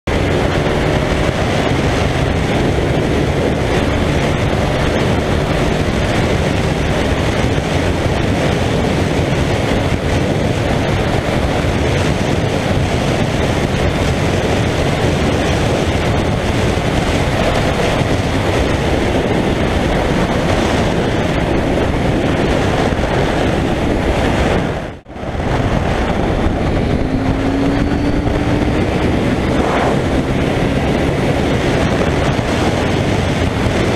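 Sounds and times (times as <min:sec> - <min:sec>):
motorcycle engine at high speed: 0:00.0 - 0:33.9
wind rushing on microphone: 0:00.0 - 0:33.9.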